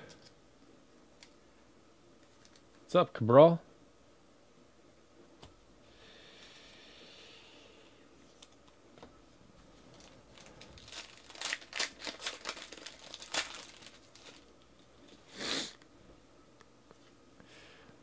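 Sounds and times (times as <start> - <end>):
wrapper crinkling as torn: 2.2 - 2.8, 9.8 - 15.2.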